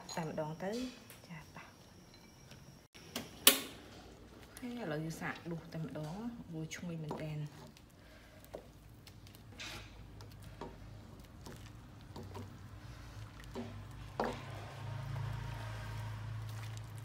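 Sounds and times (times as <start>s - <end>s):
soft liquid sounds: 10.2s - 17.0s.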